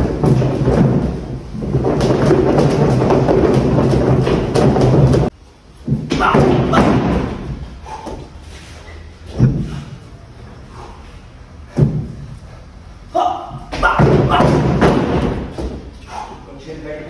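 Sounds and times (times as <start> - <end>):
battle ropes slapping floor: 0.0 - 8.3, 13.5 - 16.0
rope thuds: 0.0 - 8.3, 11.7 - 12.4, 13.5 - 16.0.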